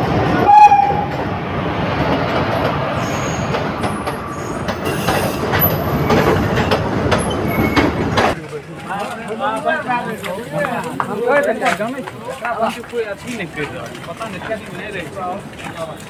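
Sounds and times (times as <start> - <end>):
train wheels rumbling and clattering: 0.0 - 9.2
high wheel squeals: 7.2 - 8.1.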